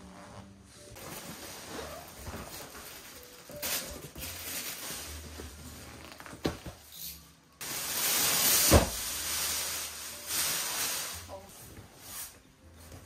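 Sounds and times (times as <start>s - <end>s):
plastic wrapping crinkling: 1.0s - 6.6s, 7.6s - 11.5s.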